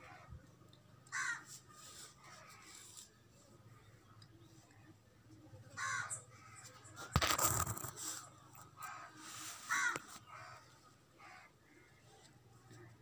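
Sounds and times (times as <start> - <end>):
crows cawing: 1.1 - 1.5, 5.8 - 6.6, 8.8 - 12.0.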